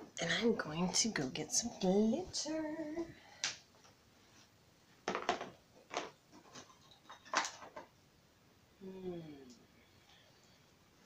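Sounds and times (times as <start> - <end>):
objects knocking and clattering: 5.0 - 8.0.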